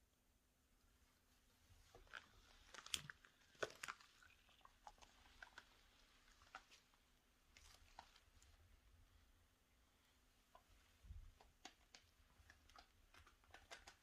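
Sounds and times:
latex clothing crinkling: 1.8 - 8.6.

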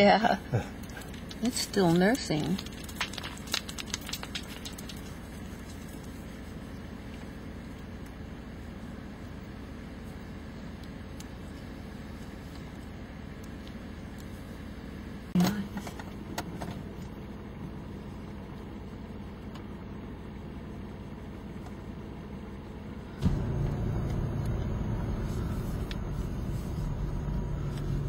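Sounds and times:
car engine and road rumble: 0.0 - 28.0.

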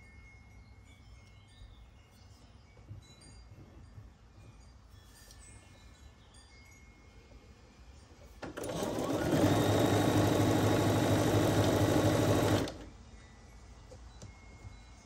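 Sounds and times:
sewing machine stitching: 8.4 - 12.9.

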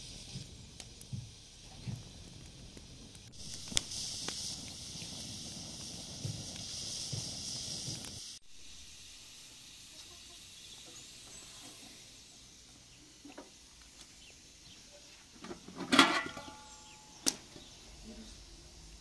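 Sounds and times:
faint background hiss: 0.0 - 19.0
metal pot lid clanking: 15.8 - 17.1.

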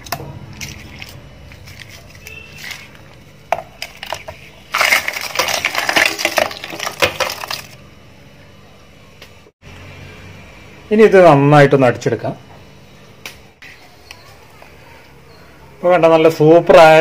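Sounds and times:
ice clattering in steel jar: 3.9 - 7.8.

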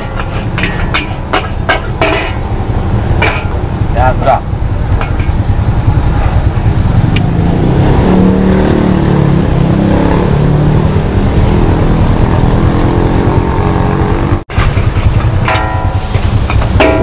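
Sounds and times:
gas burner roaring: 0.0 - 17.0.

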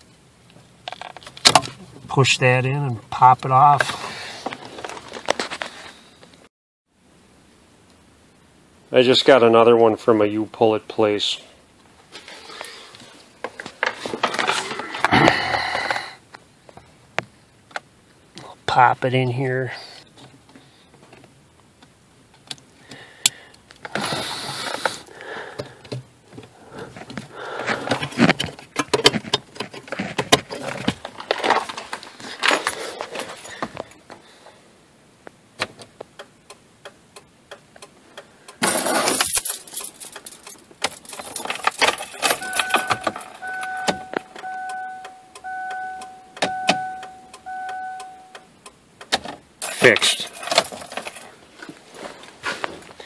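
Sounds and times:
handling rustles and clicks: 4.4 - 6.4, 25.6 - 34.2, 38.6 - 44.5, 49.0 - 53.0
keys jangling: 38.6 - 44.5, 49.6 - 51.3
car warning tone beeping: 42.2 - 49.1.

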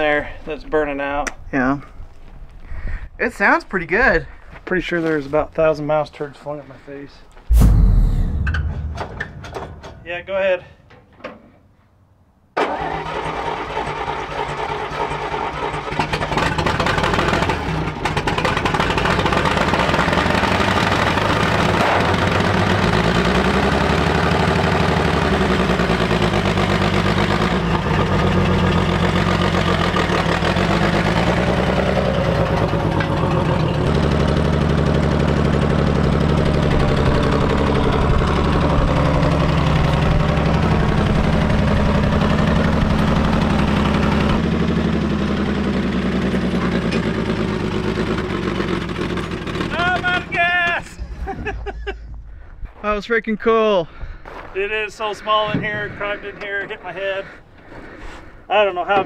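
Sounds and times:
truck engine running under load: 14.4 - 49.8.

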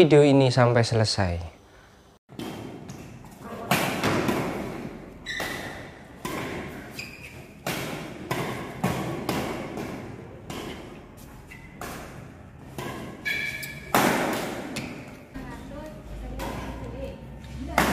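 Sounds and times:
rackets hitting shuttlecock: 2.3 - 15.3, 16.3 - 17.9
shoe squeaks: 5.2 - 5.9, 6.7 - 7.6, 11.3 - 11.8, 13.2 - 13.9.

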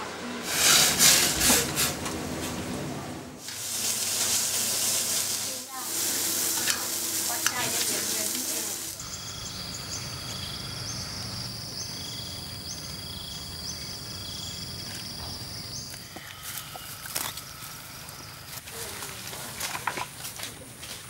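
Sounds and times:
meat sizzling on grill pan: 3.4 - 9.5
grass cropping crackles: 5.2 - 21.0
insects droning: 5.8 - 21.0
insect chirps: 7.9 - 18.8.

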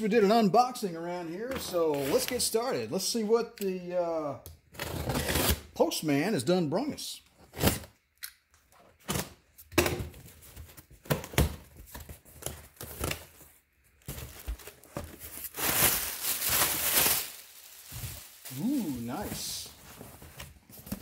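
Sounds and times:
cardboard and plastic rustling: 10.1 - 21.0
packing tape tearing off box: 14.0 - 21.0.

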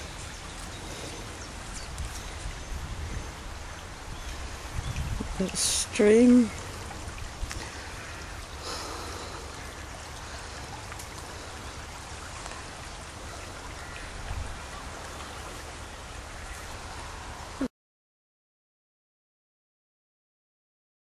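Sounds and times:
stream trickling: 0.0 - 17.7.

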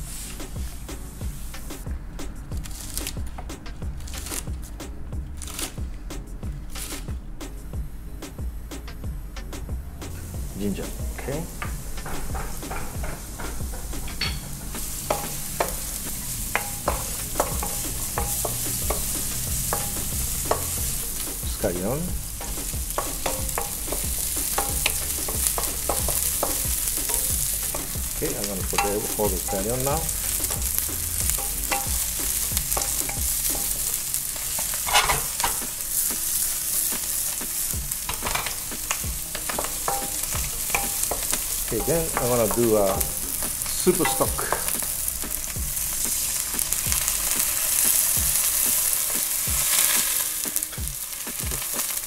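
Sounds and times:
ginger sizzling in hot oil: 0.0 - 4.7, 5.4 - 9.4, 10.0 - 52.0
wooden spatula knocking pan: 10.3 - 52.0.

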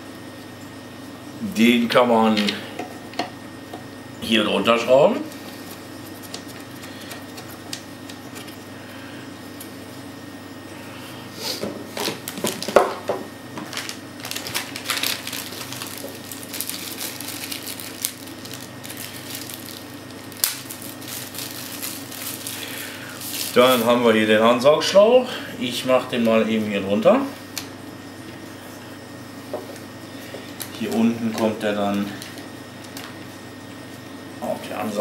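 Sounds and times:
steady low hum: 0.0 - 35.0
plastic bags crinkling: 12.1 - 12.8, 13.6 - 24.0.

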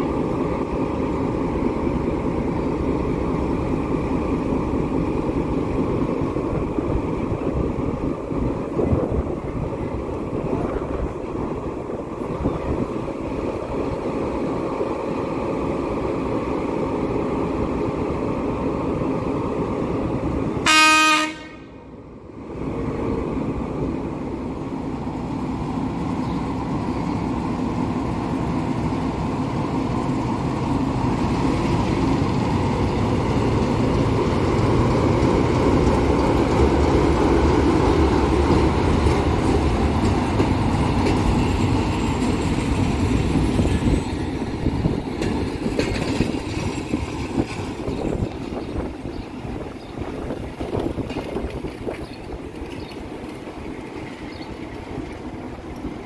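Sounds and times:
diesel locomotive rumbling: 0.0 - 56.0
locomotive horn blast: 20.6 - 21.8.

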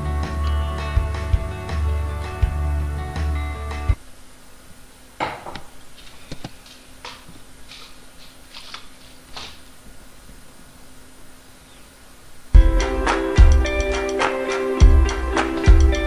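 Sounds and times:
guitar music: 0.0 - 4.0, 12.6 - 16.0
low steady hum: 0.0 - 16.0.

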